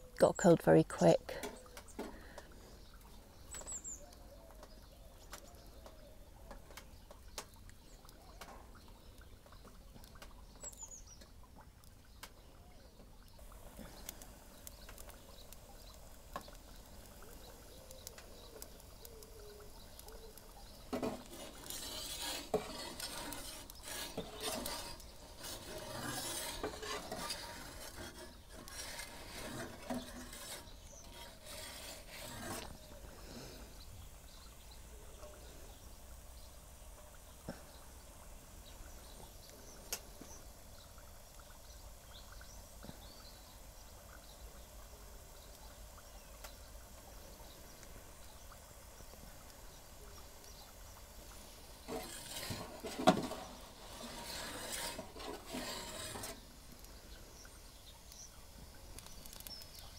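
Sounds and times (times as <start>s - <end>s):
faint wood fire crackle: 0.0s - 59.9s
metal pizza peel scraping stone: 20.9s - 32.9s, 51.8s - 56.8s.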